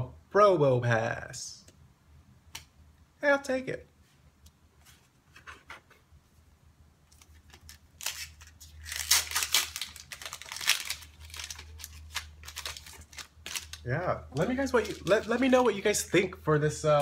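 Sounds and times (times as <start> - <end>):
foil wrapper tearing and crinkling: 7.2 - 15.9.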